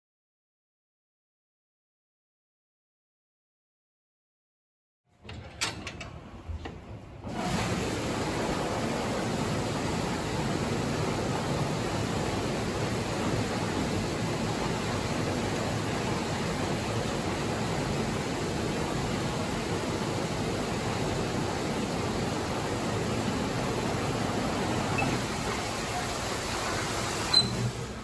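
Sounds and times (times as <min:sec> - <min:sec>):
water rushing through tank: 0:07.2 - 0:28.0.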